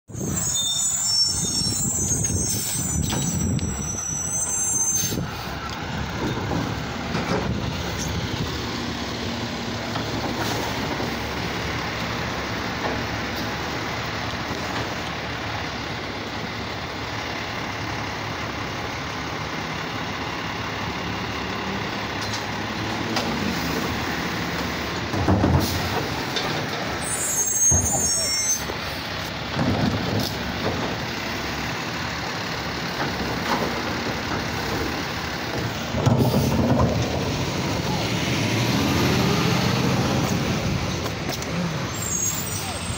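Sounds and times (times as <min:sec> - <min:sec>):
high-pitched brake squeals: 0:00.1 - 0:05.8, 0:27.0 - 0:29.0, 0:41.9 - 0:42.9
garbage truck diesel engine revving: 0:00.1 - 0:42.9.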